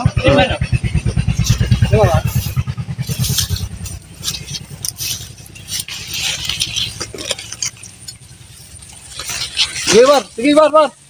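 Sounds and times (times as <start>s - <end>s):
small engine running low: 0.0s - 11.0s
leaves rustling and twigs snapping: 2.3s - 10.8s.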